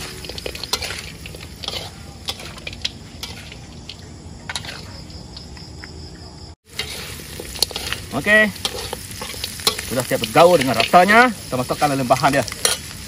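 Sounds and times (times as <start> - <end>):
meat frying in a wok: 0.0 - 5.6, 6.6 - 13.0
crickets chirping: 0.0 - 13.0.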